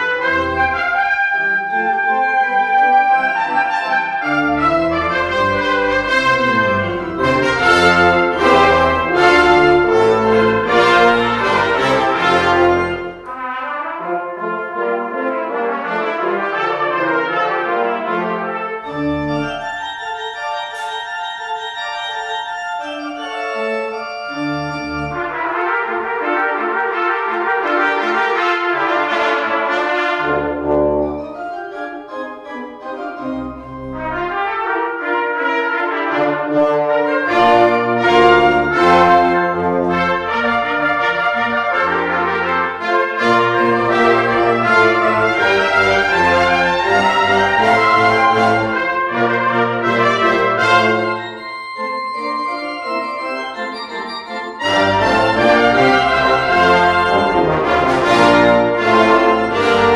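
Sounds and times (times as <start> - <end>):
brass playing classical music: 0.0 - 59.9
pipe organ: 2.8 - 13.4, 18.2 - 26.1, 43.2 - 59.9.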